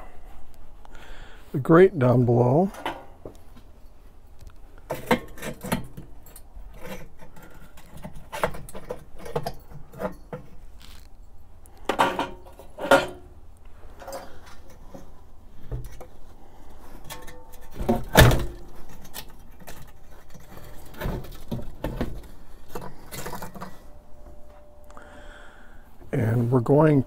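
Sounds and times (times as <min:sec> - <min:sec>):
metal grates clinking and scraping: 0:04.9 - 0:11.0, 0:11.9 - 0:13.3, 0:16.8 - 0:24.0.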